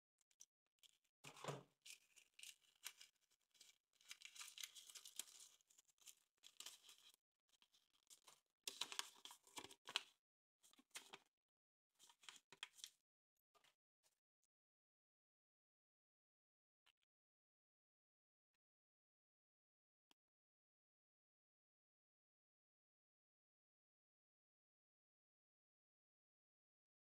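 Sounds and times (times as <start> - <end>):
foil wrapper crinkling: 1.9 - 7.1.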